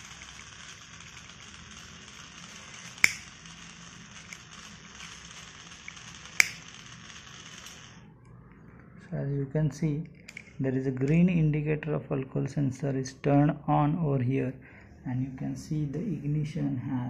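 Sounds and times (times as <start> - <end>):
small electric motor humming: 0.0 - 8.1
sharp clicks: 2.8 - 3.4, 5.8 - 6.8.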